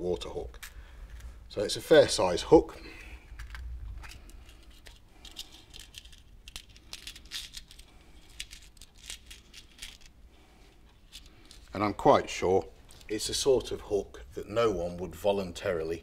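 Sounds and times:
packet clicking and crinkling: 3.2s - 10.2s.

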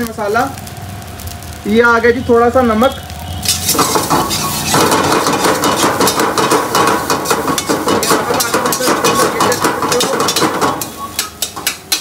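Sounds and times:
metal spatula scraping a wok: 3.4s - 12.0s.

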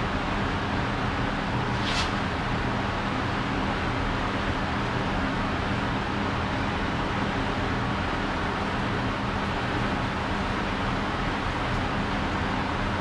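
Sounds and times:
brief hiss: 1.6s - 2.5s.

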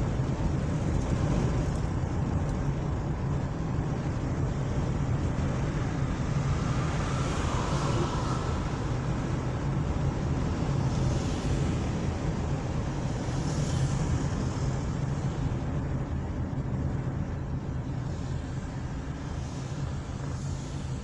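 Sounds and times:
car engine and tyre drone: 0.0s - 21.0s
tyres hissing on asphalt: 18.0s - 21.0s.

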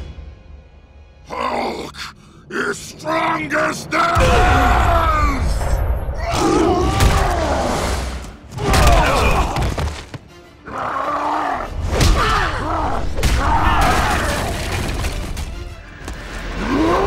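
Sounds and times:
dramatic music: 0.0s - 17.0s
creatures roaring and grunting: 6.2s - 9.7s, 10.6s - 14.7s, 16.4s - 17.0s.

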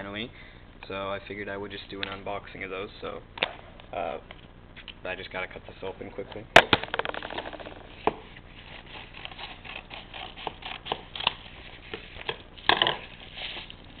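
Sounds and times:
envelope being cut open: 8.6s - 11.8s.

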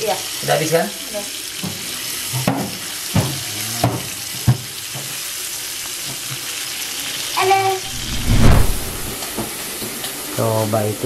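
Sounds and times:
steak sizzling in a frying pan: 0.0s - 7.6s.

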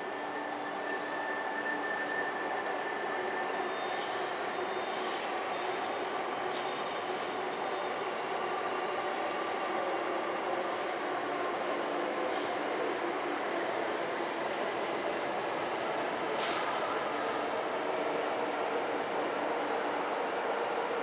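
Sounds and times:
train wheels squealing: 0.0s - 13.0s.

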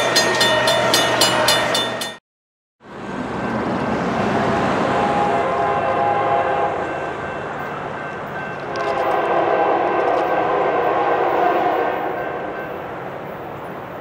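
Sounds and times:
locomotive air horn blasts: 4.7s - 7.0s, 8.7s - 12.6s.

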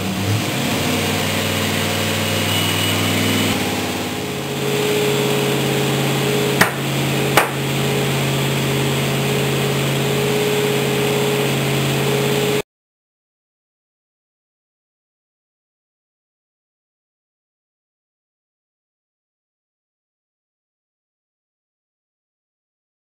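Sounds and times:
engine running on a dyno: 0.0s - 12.6s.

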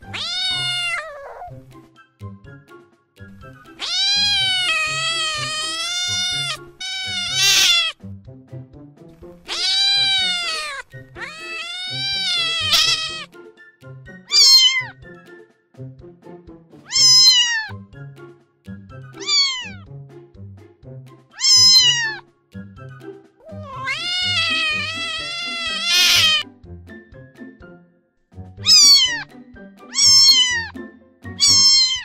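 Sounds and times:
cats meowing: 0.0s - 1.6s, 3.8s - 8.0s, 9.4s - 13.3s, 14.3s - 15.0s, 16.9s - 17.8s, 19.2s - 19.8s, 21.4s - 22.2s, 23.4s - 26.4s, 28.6s - 29.3s, 29.9s - 30.7s, 31.4s - 32.0s
soft background music: 0.0s - 32.0s.

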